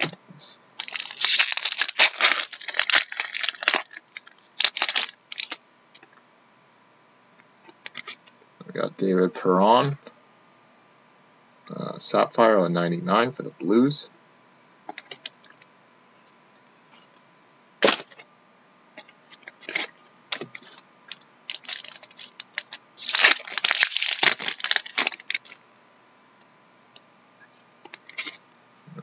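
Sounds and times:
cards rustling: 0.8s - 5.6s, 21.5s - 25.6s.

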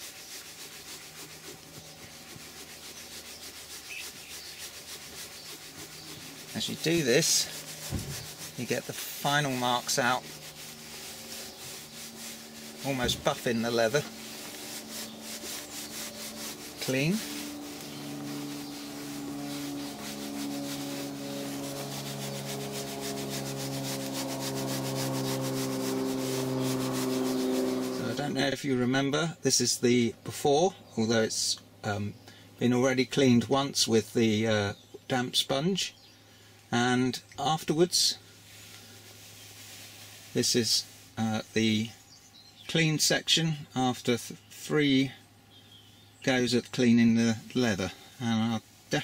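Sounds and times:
cloth rubbing on leather: 0.0s - 28.4s, 38.4s - 41.2s.

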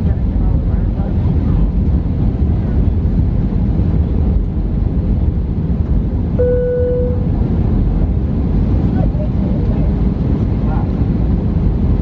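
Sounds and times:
aircraft cabin engine rumble: 0.0s - 12.0s
electronic chime tone: 6.4s - 7.2s.

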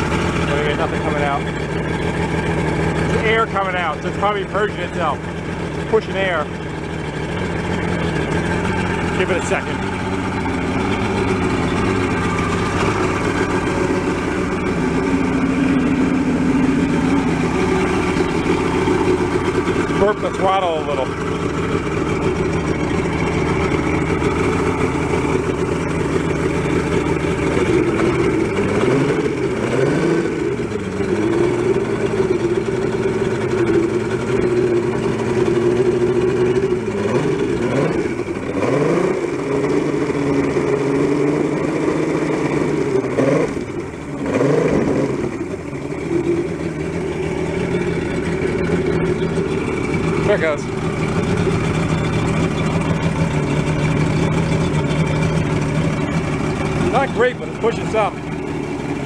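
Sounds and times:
outboard motor idling and revving: 0.0s - 59.0s.

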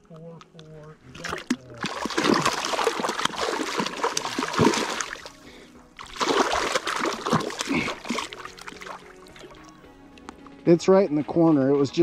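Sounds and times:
fish splashing in shallow water: 1.2s - 9.7s.

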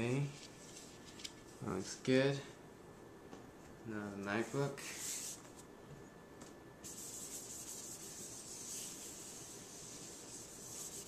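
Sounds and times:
cloth rubbing on metal: 6.9s - 11.0s.

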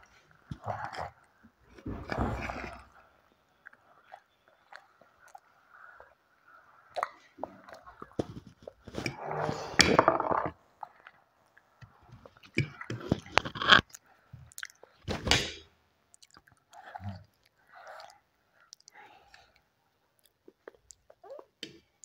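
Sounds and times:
child chewing noodles: 3.5s - 9.4s, 10.8s - 15.0s, 16.1s - 22.0s.

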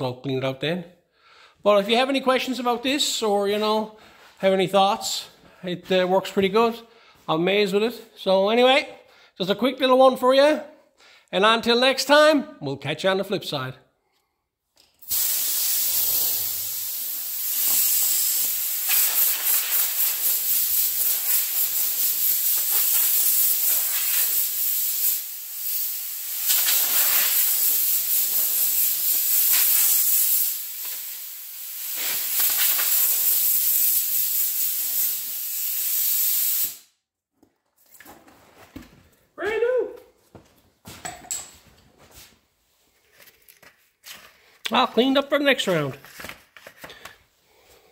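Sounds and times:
compressed air hissing from hose: 15.0s - 37.0s.

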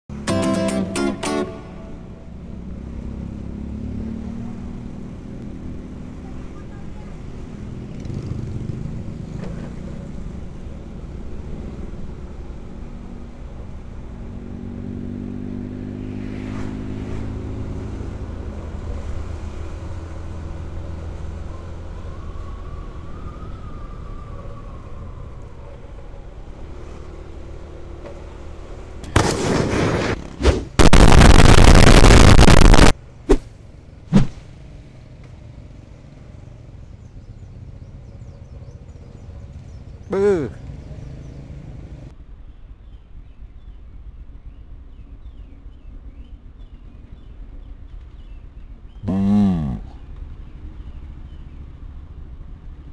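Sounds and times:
road and wind noise: 0.1s - 52.9s
short sharp pops: 29.0s - 33.5s, 34.1s - 34.4s
loud harsh noise: 30.8s - 32.9s.

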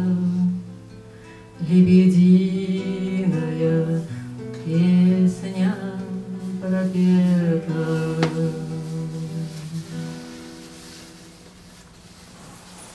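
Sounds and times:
acoustic guitar: 0.0s - 12.9s
woman singing long notes: 1.6s - 10.2s.

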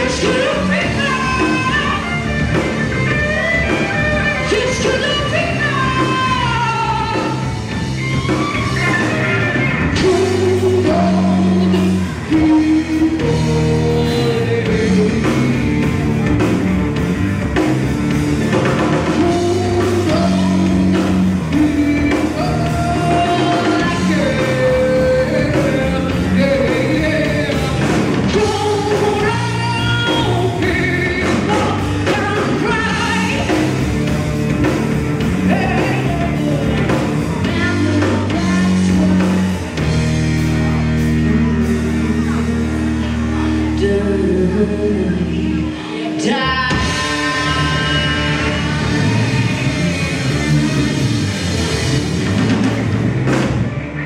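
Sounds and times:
female singer: 0.0s - 2.1s, 4.3s - 7.5s, 10.0s - 15.8s, 19.1s - 33.6s, 41.3s - 49.2s
bass guitar: 0.0s - 54.0s
drum kit: 0.0s - 54.0s
electric guitar: 0.0s - 54.0s.

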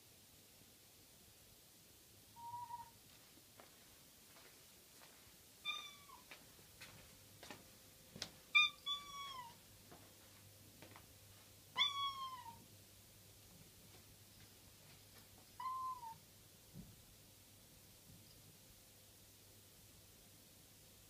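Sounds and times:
cat meowing: 2.4s - 3.0s, 5.6s - 6.3s, 8.5s - 9.6s, 11.8s - 12.6s, 15.6s - 16.2s.

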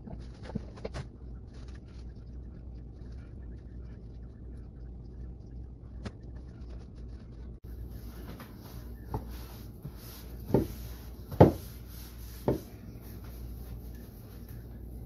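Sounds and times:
paper towels patting meat: 7.7s - 14.9s.

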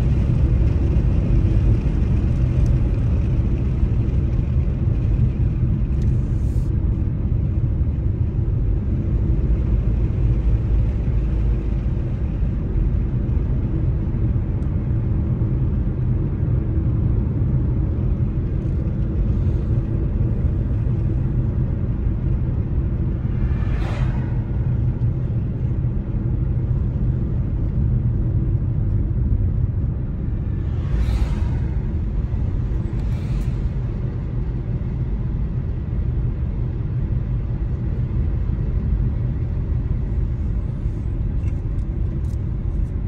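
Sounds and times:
car road rumble from inside: 0.0s - 43.0s
passing vehicle whoosh: 22.8s - 26.4s, 30.1s - 34.4s.

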